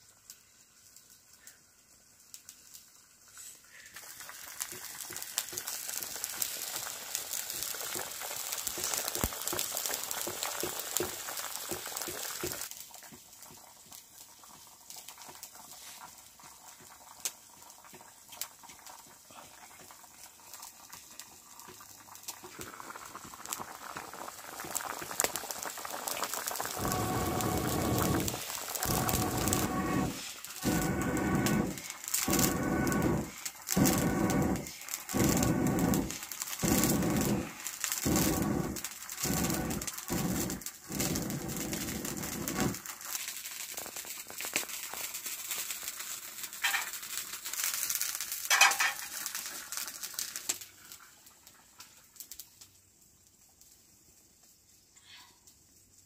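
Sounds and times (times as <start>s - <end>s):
crackling wood fire: 0.0s - 56.0s
vegetables sizzling in a wok: 0.0s - 56.0s
low loud sound: 26.7s - 41.5s.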